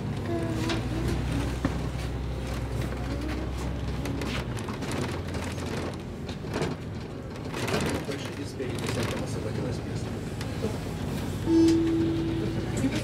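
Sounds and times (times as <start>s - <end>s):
bus body rattling: 0.0s - 13.0s
bus engine hum: 0.0s - 13.0s
tyre and road noise: 0.0s - 13.0s.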